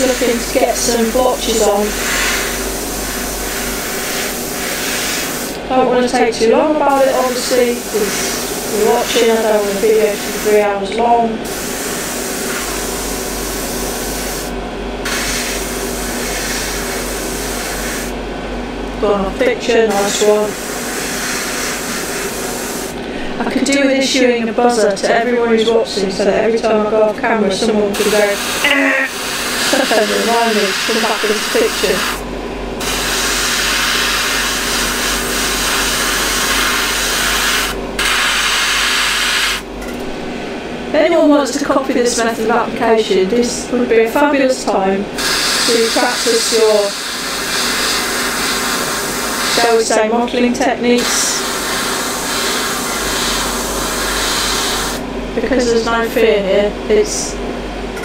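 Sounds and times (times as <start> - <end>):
airbrush spraying hiss: 0.0 - 5.6, 6.8 - 10.6, 11.4 - 18.2, 19.9 - 23.0, 28.0 - 32.2, 32.8 - 39.6, 45.2 - 49.9, 51.0 - 55.0
extractor fan hum: 0.0 - 58.0.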